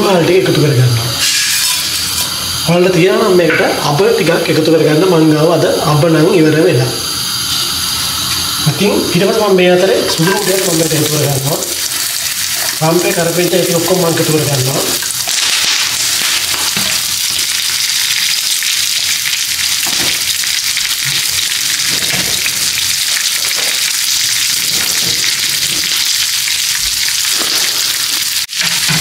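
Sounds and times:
food sizzling in hot oil: 0.0s - 29.0s.

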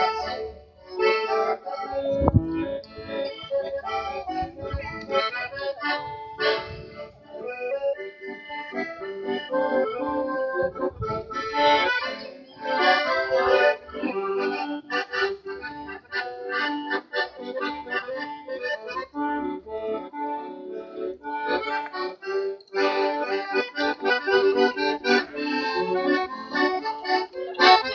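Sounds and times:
accordion playing a brisk tune: 0.0s - 27.9s.

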